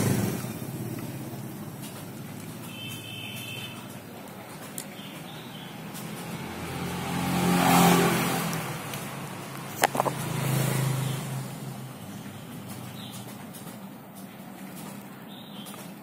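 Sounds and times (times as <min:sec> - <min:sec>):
vehicle engine passing by: 0:00.0 - 0:02.7, 0:05.2 - 0:13.4
sharp clicks: 0:12.5 - 0:16.0.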